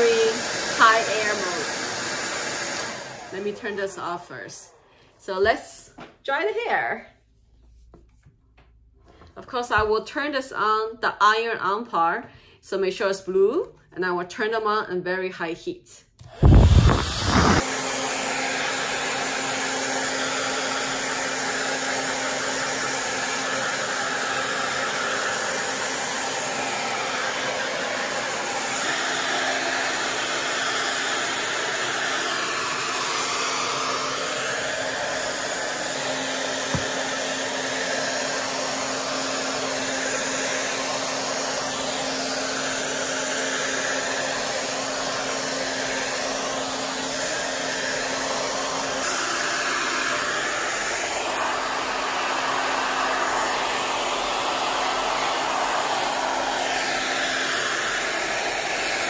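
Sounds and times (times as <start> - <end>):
hair dryer blowing: 0.0 - 6.6, 16.2 - 59.0
hair dryer click: 0.4 - 3.6, 16.2 - 18.9, 32.2 - 42.4.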